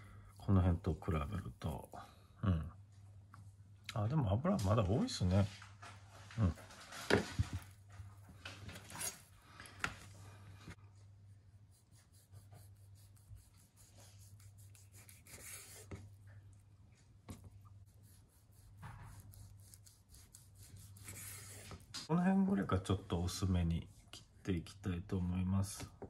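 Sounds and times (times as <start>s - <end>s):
knife slicing meat: 18.0s - 21.6s.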